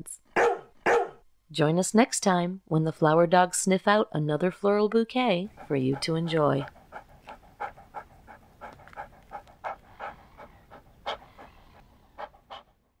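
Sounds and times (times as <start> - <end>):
dog panting: 5.5 - 13.0.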